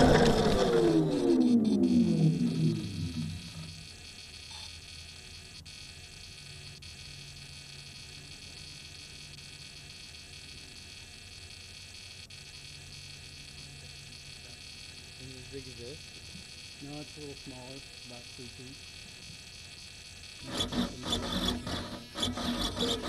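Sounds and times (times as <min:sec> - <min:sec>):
low hum: 0:00.0 - 0:04.3
thin high whines: 0:00.0 - 0:11.0, 0:11.6 - 0:23.0
electrical hum and hiss: 0:00.0 - 0:23.0.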